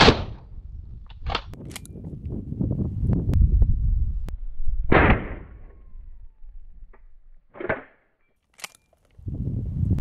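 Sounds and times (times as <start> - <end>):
shotgun blast: 4.9 - 5.7.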